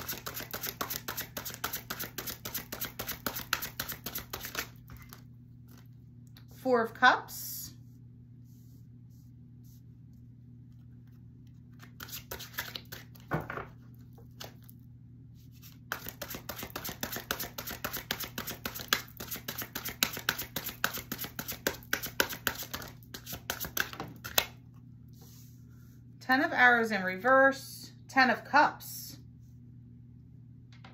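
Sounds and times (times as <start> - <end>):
cards being shuffled: 0.0 - 5.9, 11.1 - 13.3, 15.6 - 24.5
low steady hum: 0.0 - 30.9.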